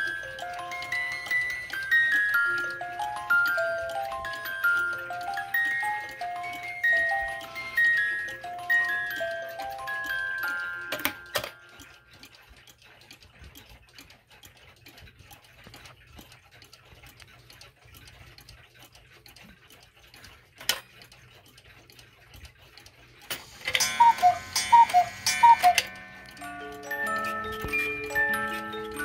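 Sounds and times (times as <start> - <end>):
cuckoo clock calling: 0.0 - 15.0, 15.8 - 29.0
mechanical clocks ticking: 0.0 - 29.0
ringing chime tones: 23.6 - 29.0.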